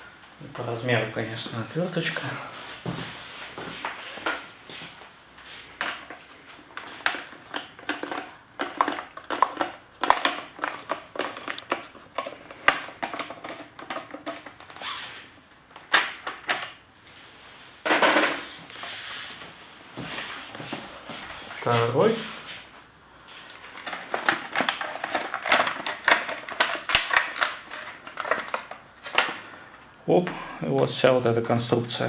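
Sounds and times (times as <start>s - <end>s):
rustling scrape: 17.1s - 26.7s.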